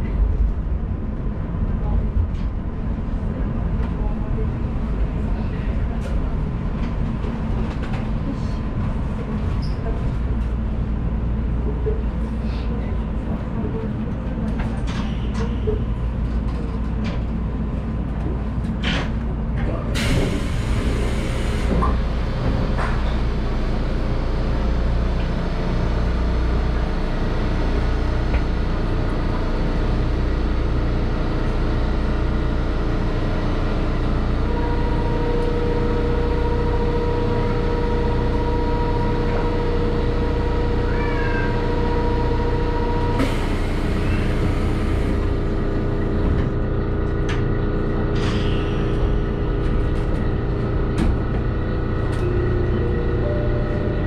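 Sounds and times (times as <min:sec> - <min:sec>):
monorail equipment low hum: 0:00.0 - 0:54.0
steady high tone: 0:52.2 - 0:54.0.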